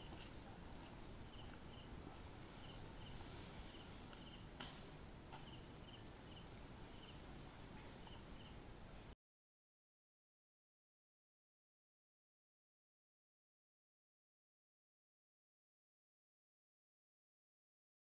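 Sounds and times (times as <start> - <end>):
faint high chirps: 5.3 - 8.6.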